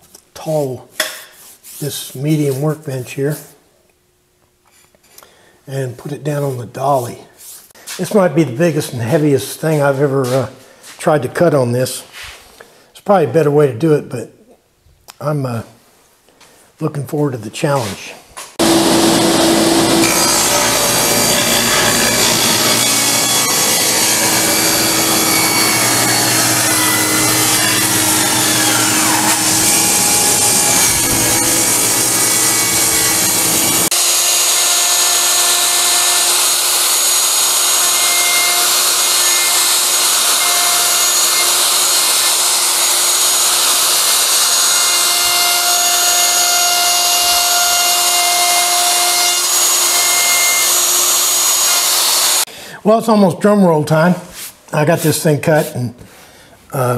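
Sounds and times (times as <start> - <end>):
router running: 18.6 - 52.5
table saw cutting wood: 18.6 - 52.5.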